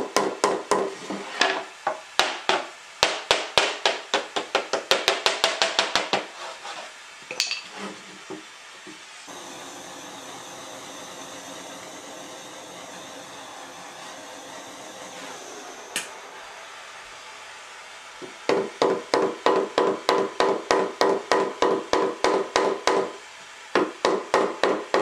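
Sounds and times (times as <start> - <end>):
gas torch hissing: 9.3 - 18.5.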